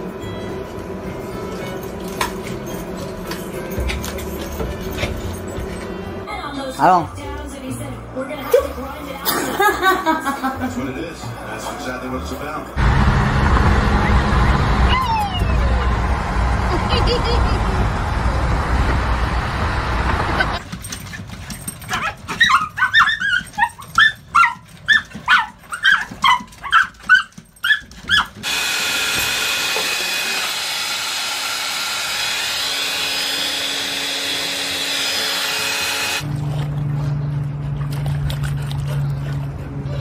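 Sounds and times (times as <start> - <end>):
road noise inside moving car: 12.8 - 20.6
small dogs barking: 21.9 - 28.4.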